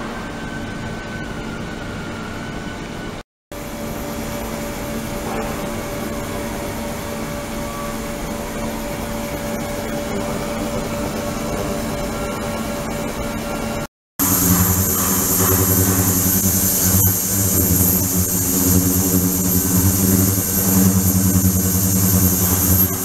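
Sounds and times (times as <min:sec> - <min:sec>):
faint hum: 0:14.2 - 0:23.0
ultrasonic tank hiss: 0:14.2 - 0:23.0.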